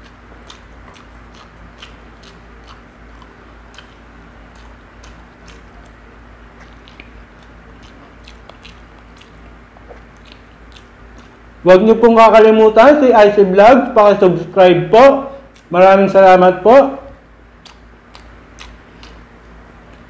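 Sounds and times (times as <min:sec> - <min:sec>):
person chewing and eating: 0:00.0 - 0:11.6, 0:15.4 - 0:15.8, 0:17.2 - 0:20.0
low steady hum: 0:00.0 - 0:20.0.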